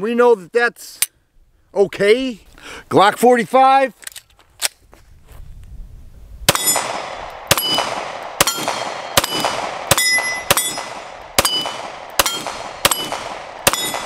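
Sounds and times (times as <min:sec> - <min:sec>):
pistol shots: 0:06.5 - 0:14.0
steel target plate ringing: 0:06.5 - 0:14.0.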